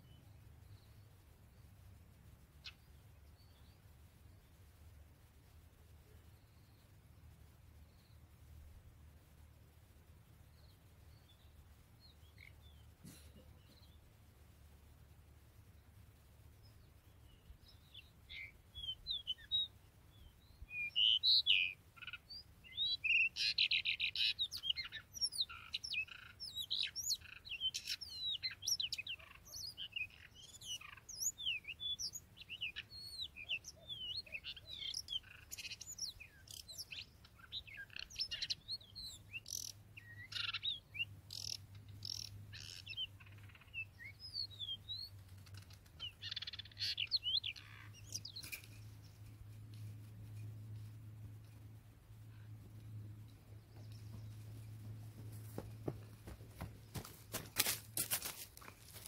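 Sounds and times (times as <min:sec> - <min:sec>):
birds singing and calling: 0:16.6 - 0:50.5.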